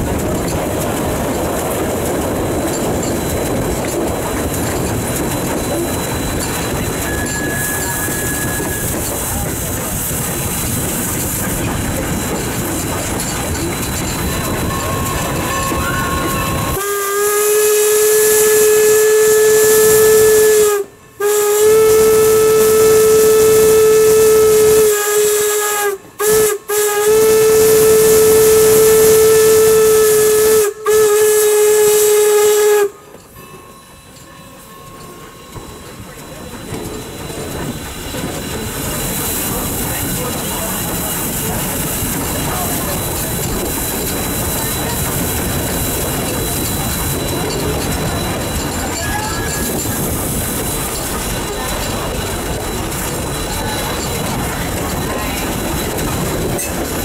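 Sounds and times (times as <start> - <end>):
train running noise: 0.0 - 57.0
steam whistle blasts: 6.9 - 9.3, 14.6 - 33.1.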